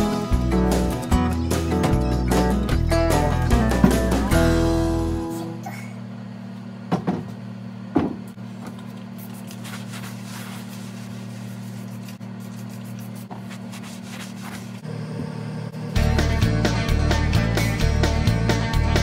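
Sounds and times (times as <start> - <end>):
steady low hum: 2.5 - 17.9
cloth rubbing over wood: 9.3 - 14.8.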